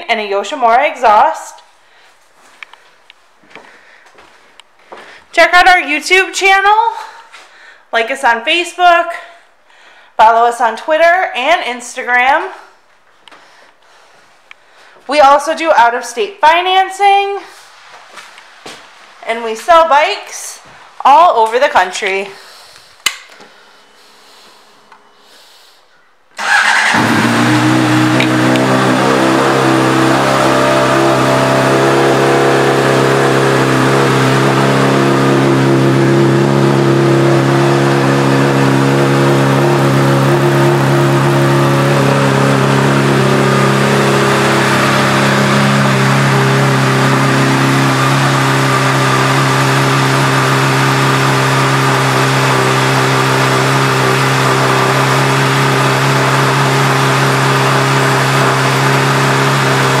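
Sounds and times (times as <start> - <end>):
motorcycle engine idling: 26.4 - 50.3.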